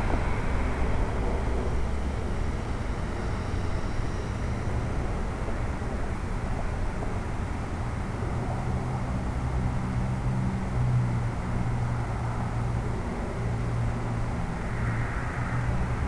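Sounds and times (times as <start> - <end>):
wind rushing hiss: 0.0 - 3.7.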